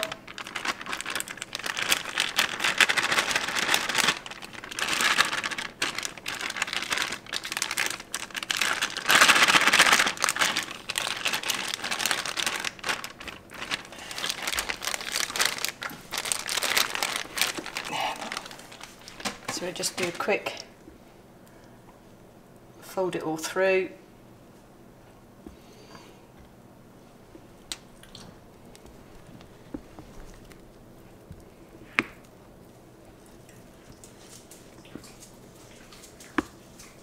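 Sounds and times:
plastic bag crinkling: 0.0s - 20.7s, 28.0s - 31.2s.

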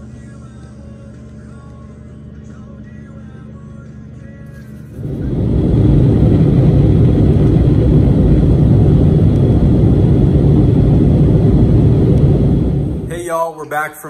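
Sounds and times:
jet engines roaring in cabin: 0.0s - 13.8s
rushing air: 4.8s - 13.3s.

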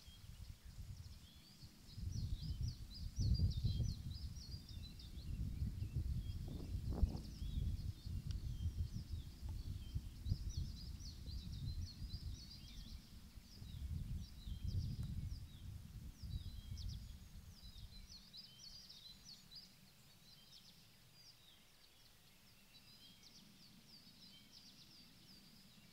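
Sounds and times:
wind buffeting microphone: 0.0s - 18.7s
small birds chirping: 0.0s - 25.9s.

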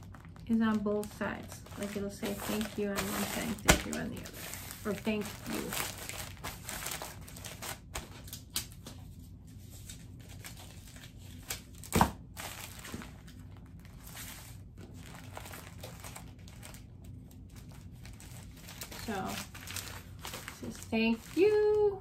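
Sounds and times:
plastic mailer crinkling: 0.0s - 8.9s, 9.8s - 22.0s.

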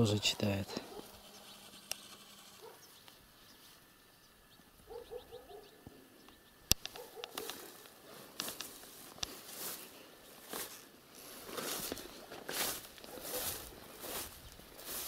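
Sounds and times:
short low bird calls: 2.6s - 7.8s
sharp click: 6.3s - 7.6s.

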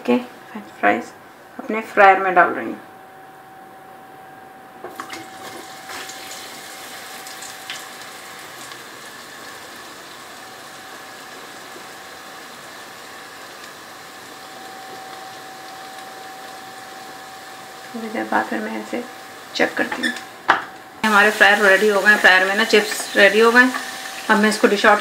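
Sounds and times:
oil sizzling in deep fryer: 4.9s - 25.0s
sharp crackles of oil: 5.4s - 16.1s.

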